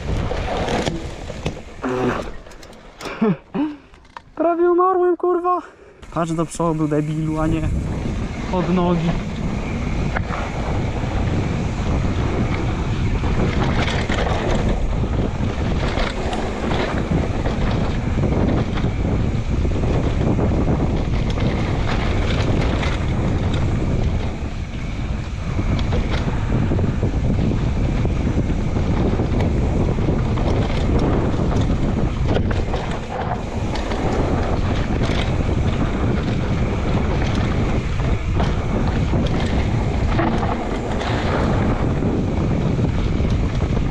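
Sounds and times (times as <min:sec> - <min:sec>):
bike rattling and knocking: 0:00.0 - 0:04.8, 0:06.1 - 0:43.9
tyre noise on dirt trail: 0:00.0 - 0:04.9, 0:05.6 - 0:43.9
wind buffeting microphone: 0:00.0 - 0:43.9.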